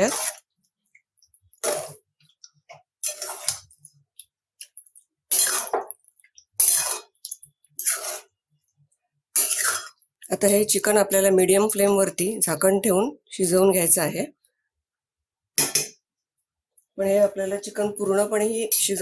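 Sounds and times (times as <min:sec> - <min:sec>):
spatula scraping metal pan: 0:00.0 - 0:00.5, 0:01.6 - 0:02.1, 0:03.0 - 0:03.8, 0:05.3 - 0:08.4, 0:09.3 - 0:10.0.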